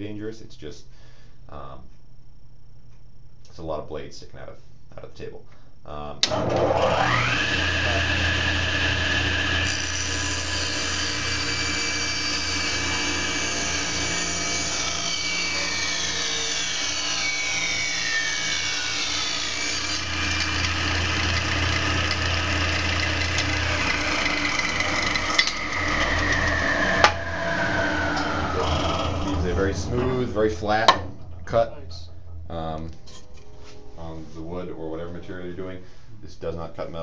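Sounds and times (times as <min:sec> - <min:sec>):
saw ripping through board: 0:06.2 - 0:29.4
table saw running: 0:06.2 - 0:31.6.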